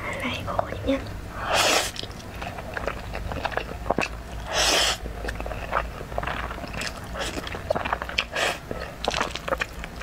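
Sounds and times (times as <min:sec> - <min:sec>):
wet chewing clicks: 0:01.8 - 0:10.0
loud noodle slurps: 0:04.4 - 0:05.0.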